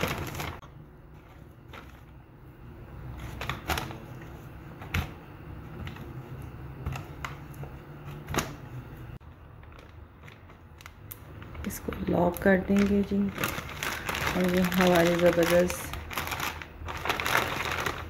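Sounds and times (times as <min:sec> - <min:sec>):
plastic bag crinkling: 0:00.0 - 0:02.2, 0:09.4 - 0:18.0.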